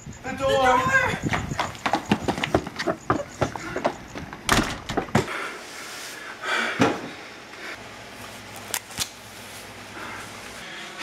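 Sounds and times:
door thudding shut: 0:04.4 - 0:05.3.

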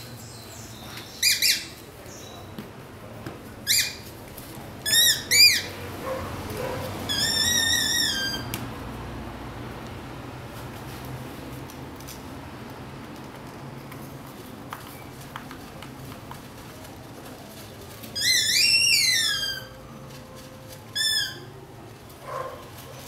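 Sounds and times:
puppy whining: 0:04.9 - 0:08.5, 0:18.2 - 0:21.6.

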